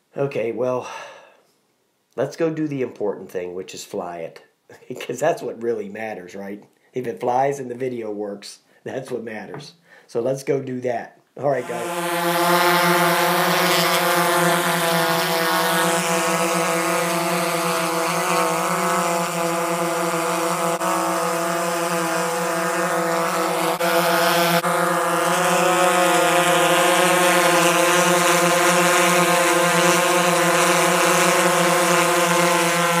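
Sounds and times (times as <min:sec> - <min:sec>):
quadcopter propellers buzzing: 0:11.6 - 0:33.0.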